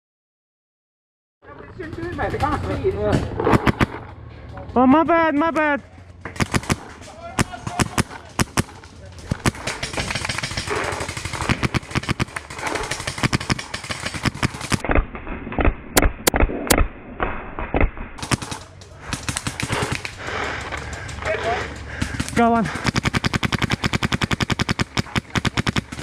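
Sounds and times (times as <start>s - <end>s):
paintball markers firing rapidly: 1.8s - 4.0s, 6.3s - 15.0s, 17.7s - 26.0s.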